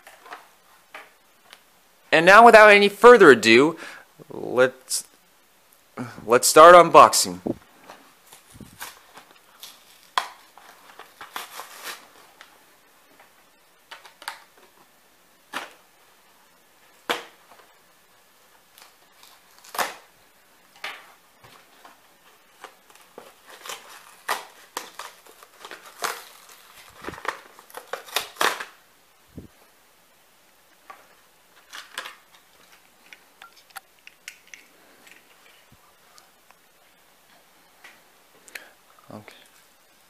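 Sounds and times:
plastic packaging crinkling and snapping: 7.9s - 12.6s, 13.2s - 14.8s, 18.6s - 20.1s, 20.7s - 28.8s, 30.7s - 35.7s.

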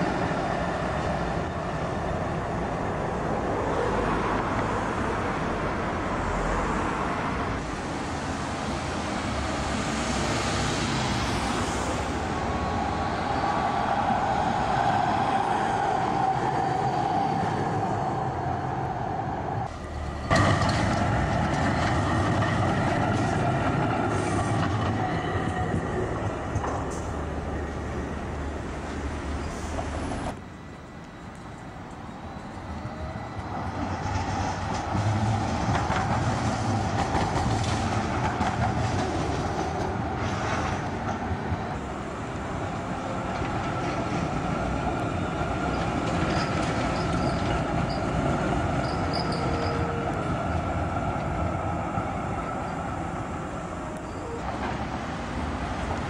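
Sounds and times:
tram wheels rumbling on rails: 0.0s - 56.0s
high wheel squeal: 45.2s - 50.9s, 51.7s - 54.9s.

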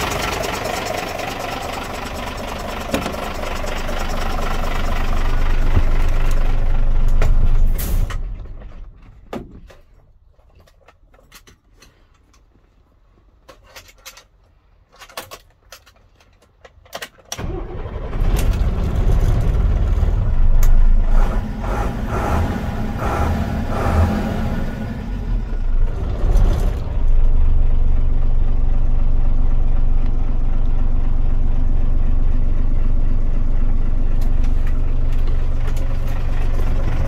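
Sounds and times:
fire truck diesel engine: 0.0s - 9.0s, 17.4s - 37.0s.

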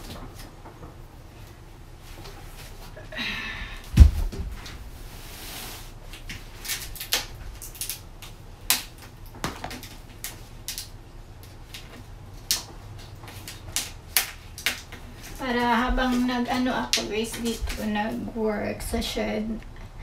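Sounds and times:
heavy thump: 3.9s - 5.0s.

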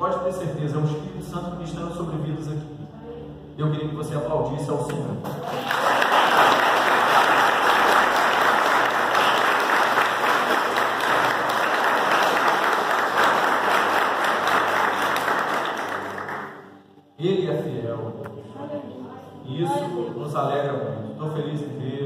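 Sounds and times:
congregation applauding: 5.2s - 16.8s.

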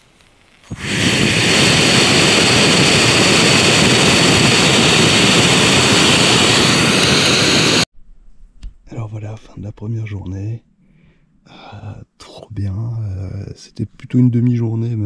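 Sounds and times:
gas stove burner roaring hiss: 0.0s - 7.9s.

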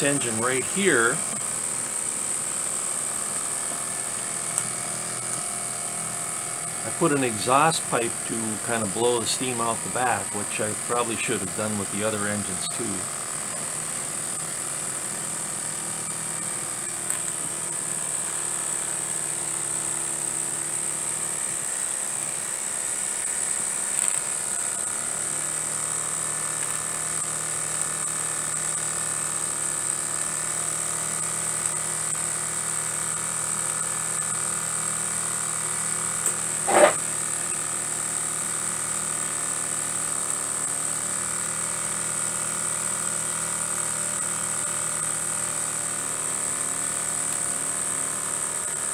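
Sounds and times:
model steam engine whirring: 0.0s - 16.7s.

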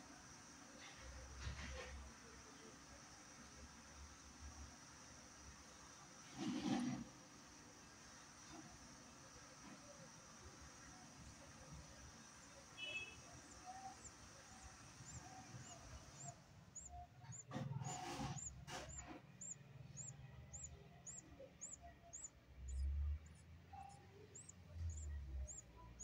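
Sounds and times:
budgerigars chirping: 13.2s - 26.0s.

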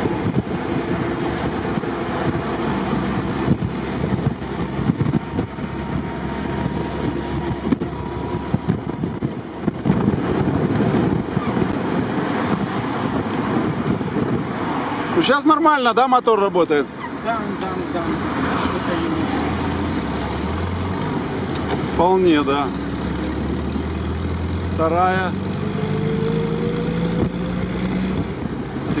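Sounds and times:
car engine running: 0.0s - 14.6s
wind buffeting microphone: 0.0s - 15.4s, 16.9s - 29.0s
tyres rumbling on asphalt: 0.0s - 29.0s.

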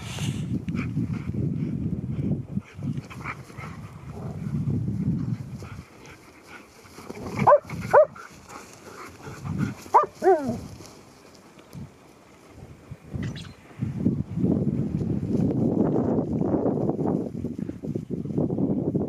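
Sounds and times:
dogs play-growling: 2.6s - 4.6s, 5.3s - 11.0s
dogs yelping barks: 7.4s - 8.3s, 9.9s - 10.6s.

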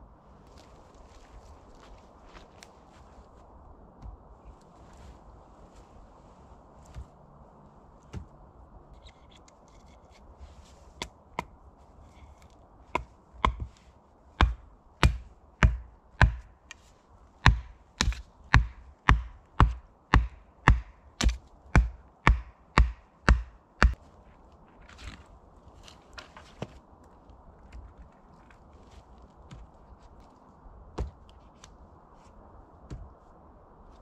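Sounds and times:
tool striking wood: 13.0s - 13.7s, 14.4s - 16.6s, 17.5s - 24.0s.

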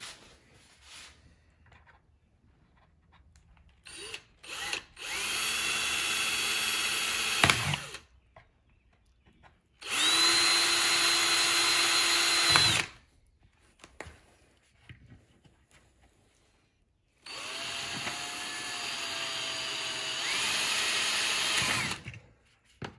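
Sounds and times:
cordless drill whining: 3.8s - 8.1s, 9.8s - 13.1s, 17.2s - 22.3s.

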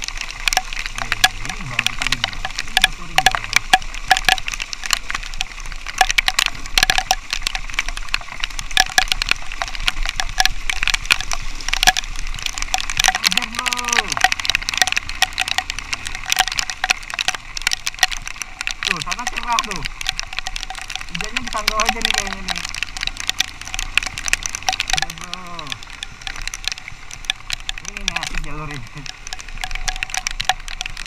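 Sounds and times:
raindrops striking microphone: 0.0s - 31.0s.

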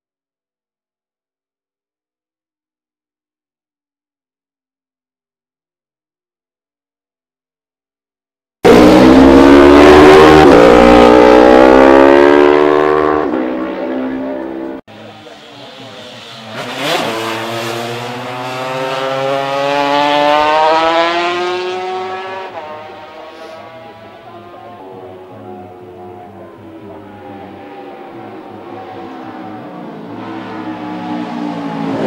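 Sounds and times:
motorcycle engine accelerating: 8.6s - 32.0s
racing motorcycles passing: 8.6s - 32.0s.

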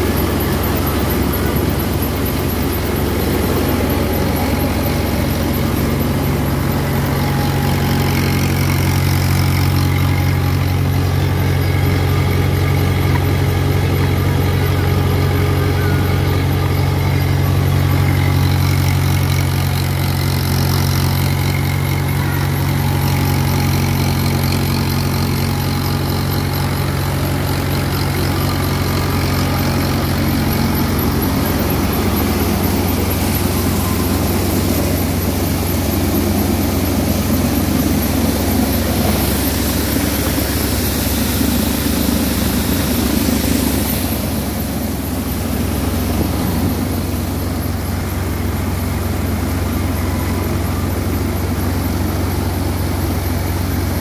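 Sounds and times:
thresher drum rushing noise: 0.0s - 9.8s
tractor diesel engine running: 0.0s - 54.0s.

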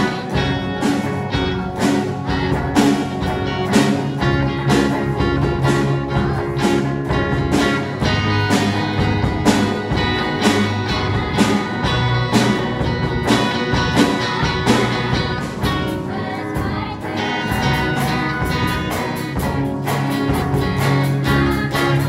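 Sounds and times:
rock band playing: 0.0s - 22.0s
steady drum beat: 0.0s - 22.0s
children singing: 1.8s - 19.4s, 20.2s - 22.0s.

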